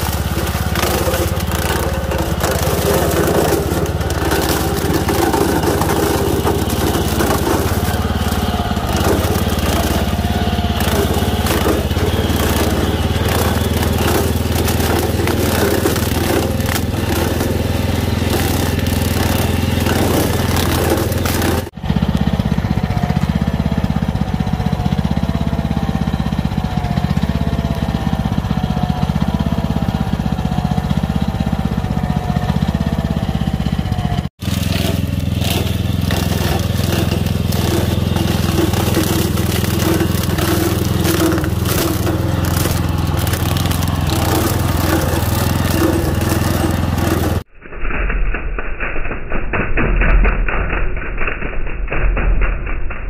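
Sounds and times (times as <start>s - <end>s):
stalks crackling being chopped: 0.0s - 21.8s, 34.4s - 47.5s
small cultivator engine running: 0.0s - 47.5s.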